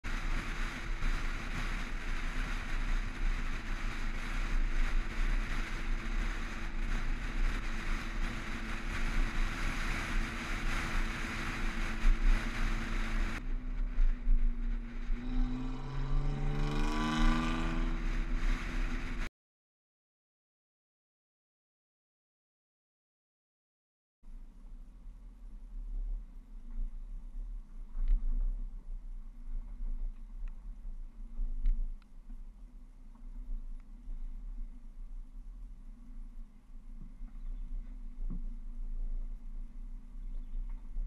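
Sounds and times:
car driving on paved road: 0:00.0 - 0:19.3, 0:24.3 - 0:41.0
wind rushing over microphone: 0:00.0 - 0:19.3.

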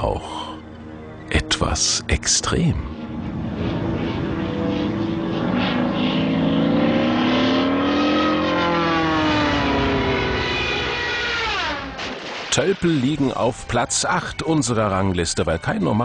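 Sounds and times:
propeller aircraft engine drone: 0:00.0 - 0:15.7.

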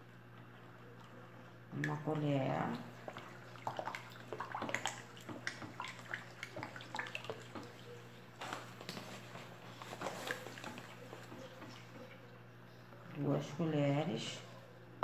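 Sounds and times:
liquid swishing: 0:02.3 - 0:12.4.

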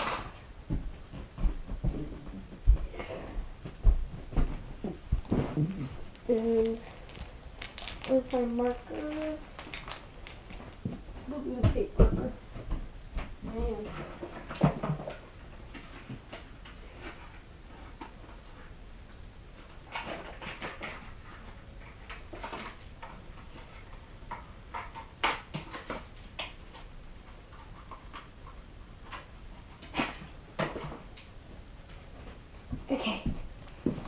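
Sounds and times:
small items clicking and tapping: 0:03.6 - 0:12.3.

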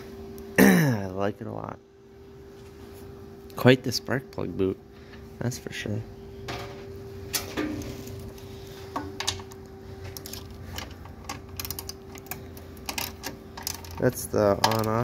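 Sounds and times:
steady hum: 0:00.0 - 0:15.0
engine parts clicking and tapping: 0:08.9 - 0:15.0.

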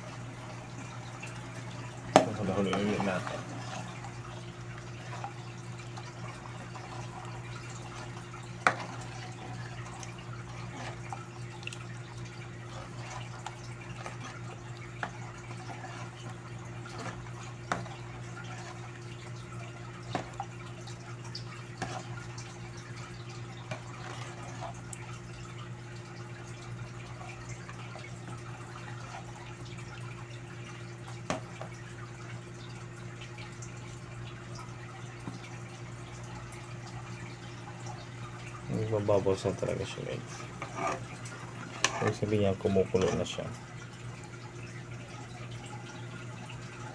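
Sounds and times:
porridge bubbling in a pot: 0:00.0 - 0:46.9
metal ladle scraping a pot: 0:40.3 - 0:42.3.

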